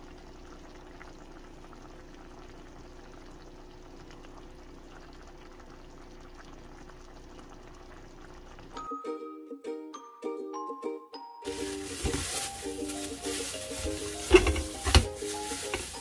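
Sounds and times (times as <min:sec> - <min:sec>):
watery hiss of liquid: 0:11.5 - 0:16.0.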